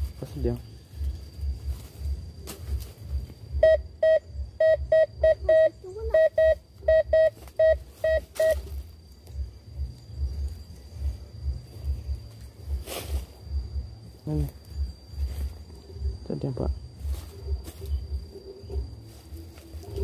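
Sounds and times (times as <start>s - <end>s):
metal detector beeping: 3.6s - 8.7s.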